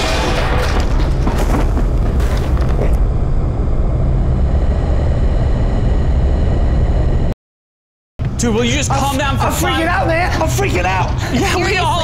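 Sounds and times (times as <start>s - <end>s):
deep rumbling drone: 0.0s - 7.4s
steady electric hum: 1.4s - 7.3s.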